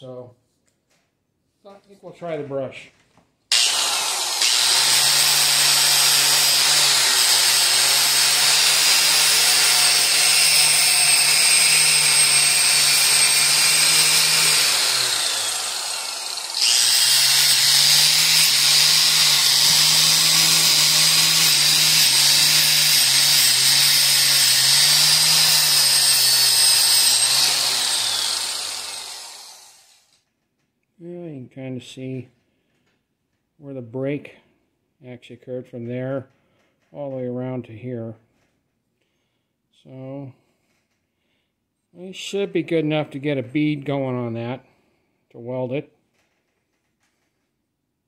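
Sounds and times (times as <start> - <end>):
wire brush grinder on metal: 3.5 - 30.2.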